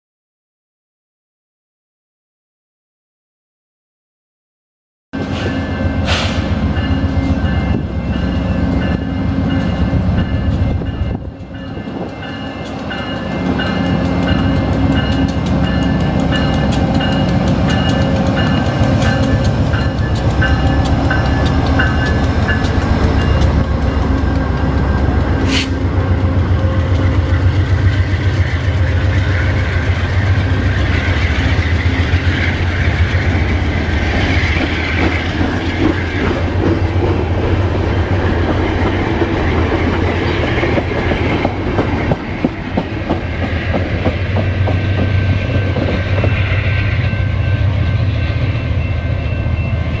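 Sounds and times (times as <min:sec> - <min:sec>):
diesel locomotive engine: 0:05.2 - 0:50.0
train cars rumbling: 0:05.2 - 0:50.0
wheels clacking over rail joints: 0:11.4 - 0:28.2.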